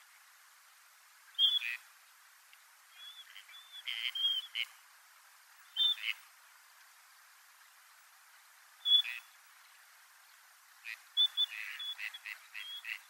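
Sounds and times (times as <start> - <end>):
duck whistling calls: 1.4 - 1.8, 3.0 - 4.7, 5.8 - 6.2, 8.8 - 9.3, 10.9 - 13.0.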